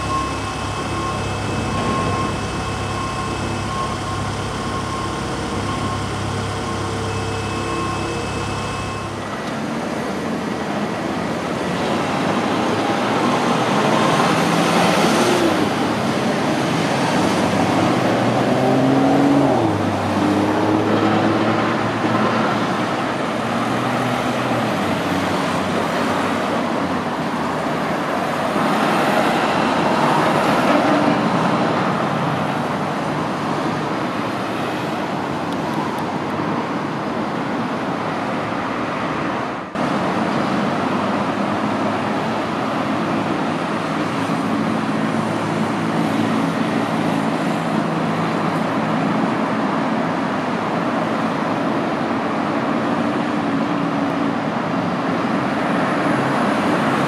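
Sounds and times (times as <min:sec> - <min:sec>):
diesel engine hum with whine: 0:00.0 - 0:57.0
excavator and dump truck engines: 0:00.0 - 0:57.0
road traffic: 0:00.0 - 0:57.0.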